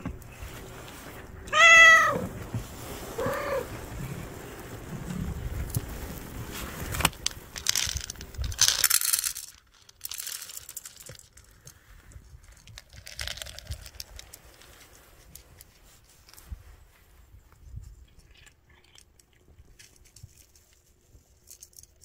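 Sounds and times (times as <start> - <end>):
cat crunching kibble: 1.2 - 16.3, 17.9 - 22.0
plastic packaging crinkling: 2.7 - 16.4
dry cat food poured into bowl: 5.2 - 16.4.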